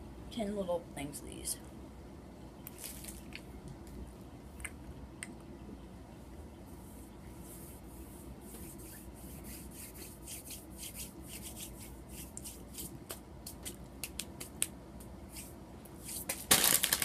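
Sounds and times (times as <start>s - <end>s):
hands rubbing near microphone: 6.7s - 13.7s.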